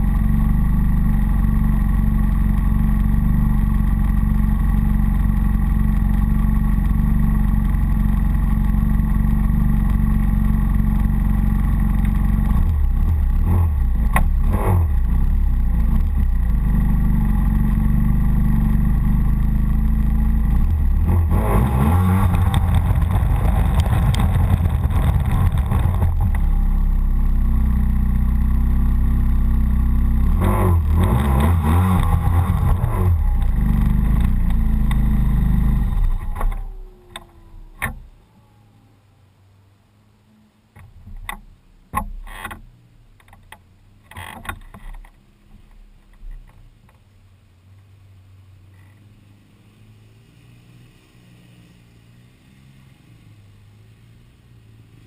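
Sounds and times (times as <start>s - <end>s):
snowmobile engine idling and revving: 0.0s - 38.7s.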